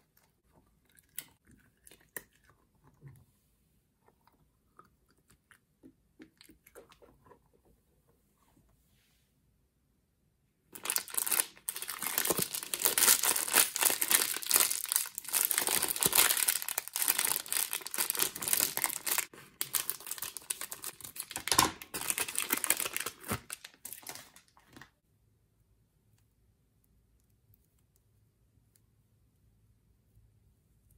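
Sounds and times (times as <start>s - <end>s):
plastic wrapper crinkling: 10.7s - 25.0s.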